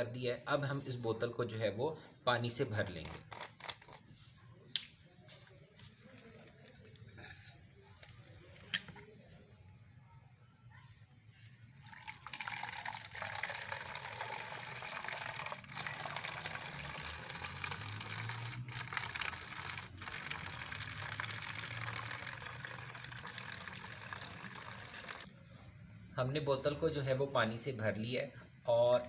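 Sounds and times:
water pouring into plastic bottle: 0:11.8 - 0:25.3.

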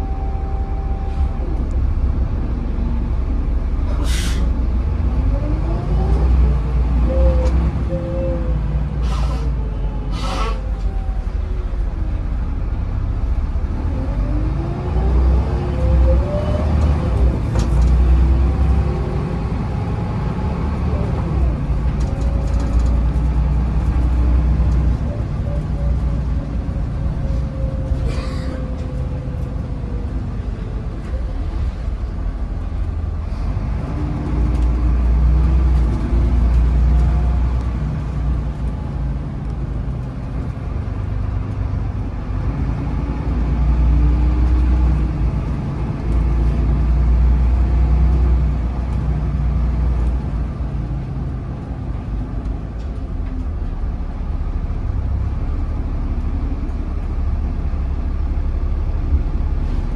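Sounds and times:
bus engine rumble and whine: 0:00.0 - 0:59.9
short air hisses: 0:04.0 - 0:04.5.

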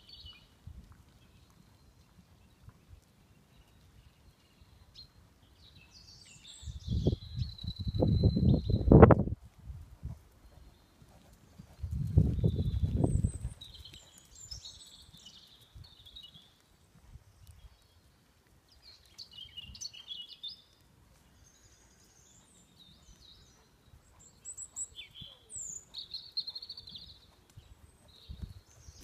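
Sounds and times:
horse hoofbeats on sand: 0:09.8 - 0:17.8
birds chirping and trilling: 0:21.3 - 0:29.0.

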